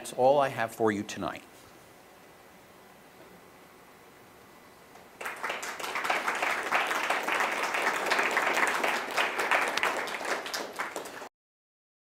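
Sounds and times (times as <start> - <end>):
audience applauding: 5.2 - 11.3.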